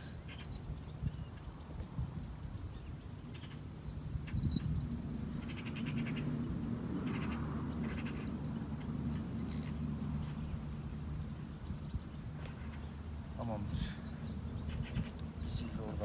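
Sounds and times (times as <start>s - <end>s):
rattling animal calls: 7.0s - 10.4s.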